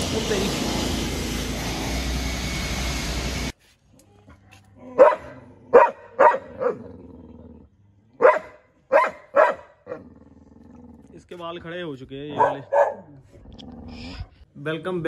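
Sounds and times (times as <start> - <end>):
dog barking: 5.0 - 6.8, 8.2 - 10.0, 12.3 - 13.2.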